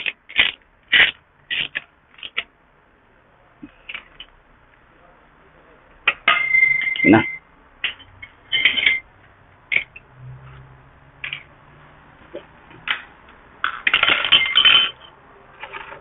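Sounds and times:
metal tools clinking: 0:06.1 - 0:09.1, 0:13.6 - 0:16.0.

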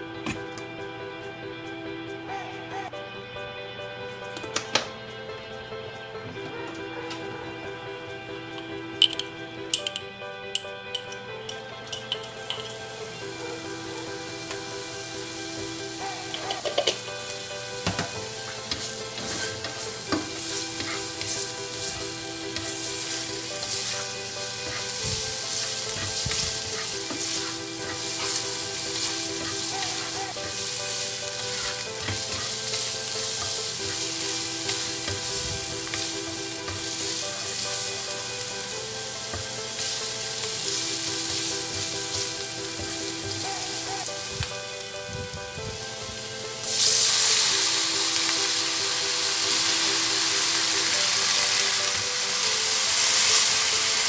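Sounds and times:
garlic sizzling in hot oil: 0:11.8 - 0:54.0
spatula scraping and tapping pan: 0:17.8 - 0:37.1.

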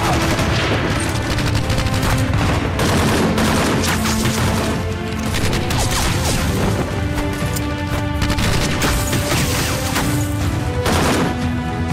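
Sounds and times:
automatic gunfire: 0:00.0 - 0:06.0
dramatic action music: 0:00.0 - 0:11.9.

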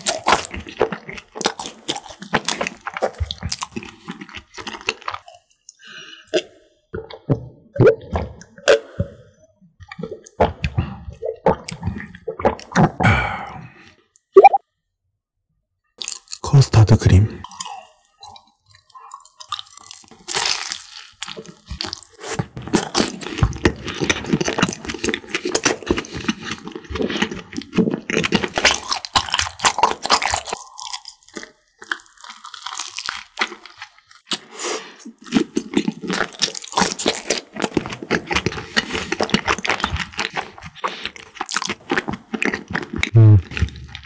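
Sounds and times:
crisp pastry crunching while chewing: 0:00.0 - 0:05.8, 0:16.0 - 0:16.5, 0:17.4 - 0:44.0.

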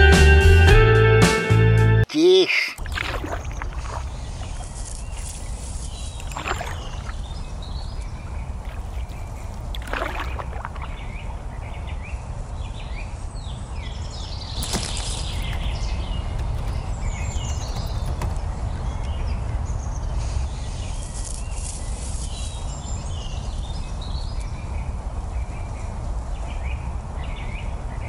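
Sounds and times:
birds chirping: 0:02.4 - 0:24.9
loud sweeping bird calls: 0:02.5 - 0:23.6.

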